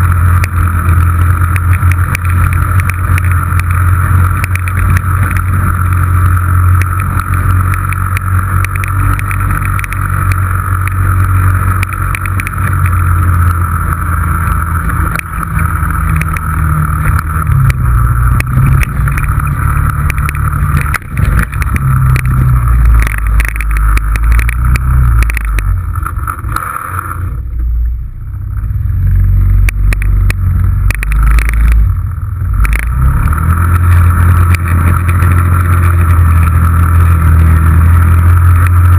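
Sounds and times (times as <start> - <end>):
scattered clicks: 0.0 - 27.7, 29.5 - 38.9
engine low drone: 0.0 - 38.9
engine whine: 0.0 - 38.9.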